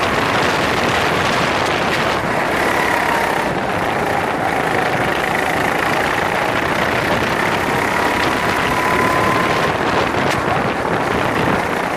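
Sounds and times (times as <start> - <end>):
go-kart engine running: 0.0 - 11.9
wind noise: 0.0 - 11.9.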